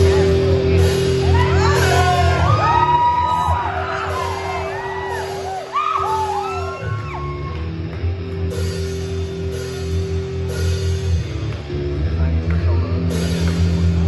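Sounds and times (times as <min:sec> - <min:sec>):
electric guitar chords: 0:00.0 - 0:14.0
audience whooping and yelling: 0:01.0 - 0:07.8.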